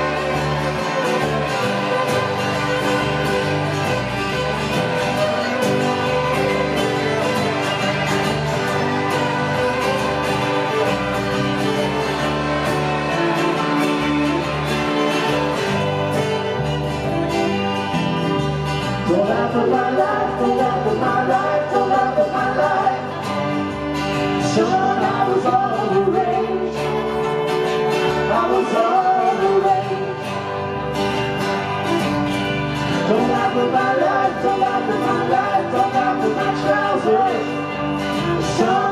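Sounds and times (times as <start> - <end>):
live band guitar music: 0.0 - 38.9
person singing: 19.0 - 23.7, 24.3 - 30.5, 32.8 - 38.9.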